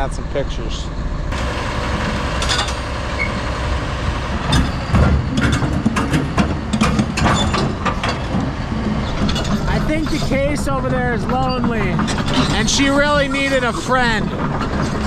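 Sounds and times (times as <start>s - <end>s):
diesel engine running: 0.0s - 15.0s
metal clanks and knocks: 2.4s - 3.0s, 4.5s - 13.2s.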